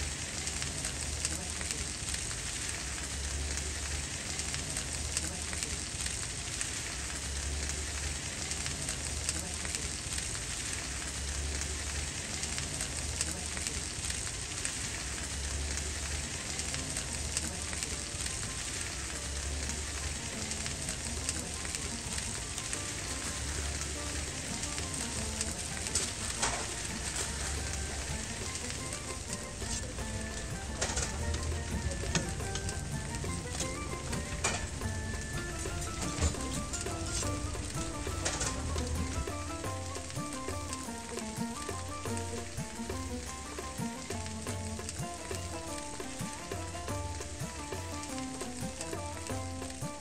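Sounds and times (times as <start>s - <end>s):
food sizzling on a griddle: 0.0s - 50.0s.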